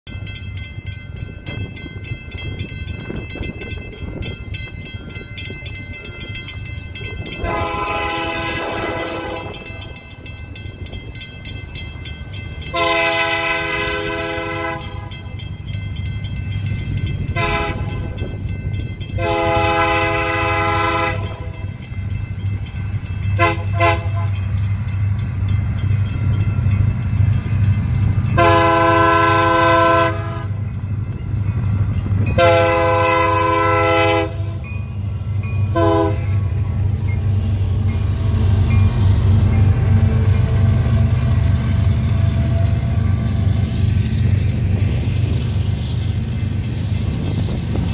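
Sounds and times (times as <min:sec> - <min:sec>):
train air horn blasts: 0:07.4 - 0:10.0, 0:12.7 - 0:15.2, 0:17.4 - 0:18.2, 0:19.2 - 0:21.7, 0:23.4 - 0:24.4, 0:28.4 - 0:30.6, 0:32.4 - 0:34.7, 0:35.7 - 0:36.5.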